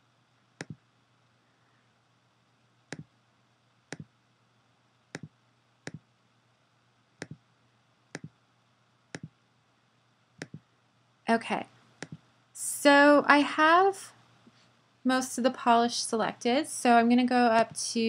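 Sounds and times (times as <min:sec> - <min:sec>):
mouse button clicks: 0:00.6 - 0:00.8, 0:10.4 - 0:10.6.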